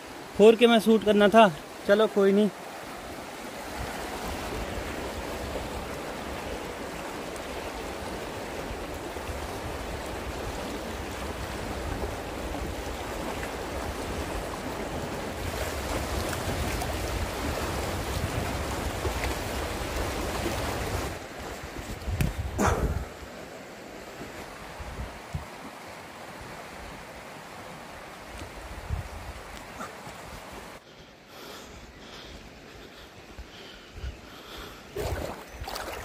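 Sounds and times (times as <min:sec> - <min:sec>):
river rushing: 0:00.0 - 0:21.9, 0:22.5 - 0:30.8
wind on microphone: 0:08.0 - 0:23.2, 0:28.4 - 0:29.6.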